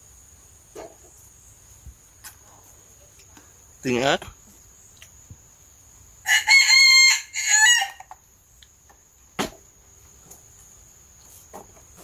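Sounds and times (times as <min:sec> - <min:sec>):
insect chirr: 0:00.0 - 0:12.0
rooster crowing: 0:06.2 - 0:08.2.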